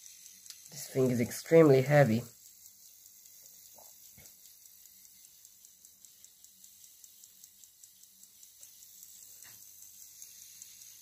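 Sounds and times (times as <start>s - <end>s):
clock ticking rapidly: 0.0s - 11.0s.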